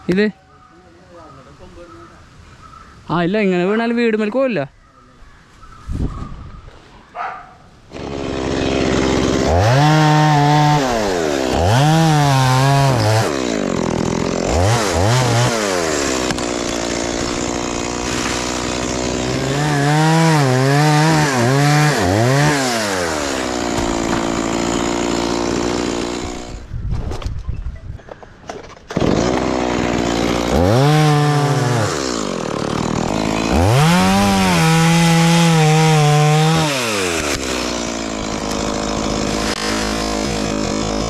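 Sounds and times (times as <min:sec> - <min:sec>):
chainsaw cutting wood: 0:07.9 - 0:26.7, 0:28.8 - 0:41.0.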